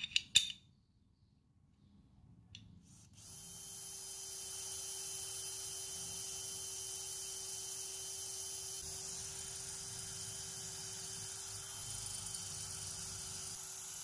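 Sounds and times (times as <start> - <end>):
cordless drill boring through steel: 2.9 - 14.0.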